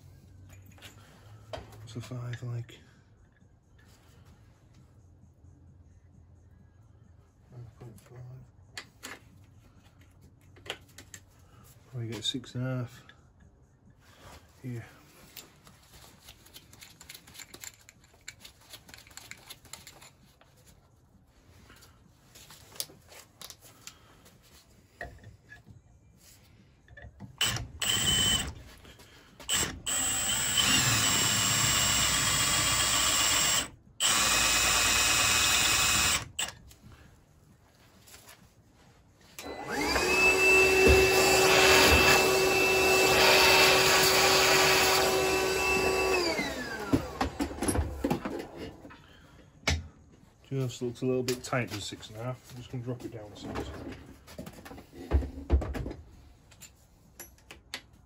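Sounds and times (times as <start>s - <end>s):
cordless drill drilling metal: 27.4s - 28.6s, 29.4s - 36.6s, 39.4s - 47.3s
handheld vacuum whining: 27.4s - 28.6s, 29.4s - 36.5s, 39.4s - 48.6s.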